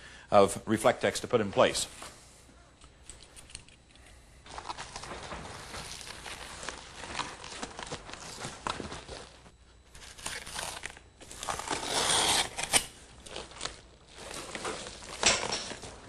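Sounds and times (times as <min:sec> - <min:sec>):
foil insulation crinkling: 0:04.4 - 0:16.0.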